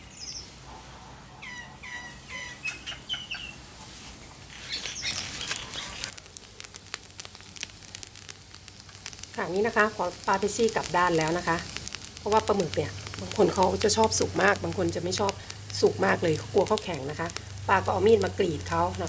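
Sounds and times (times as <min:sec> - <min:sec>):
birds chirping: 0:00.0 - 0:00.5, 0:01.2 - 0:06.1
squid sizzling on a grill: 0:02.4 - 0:19.0.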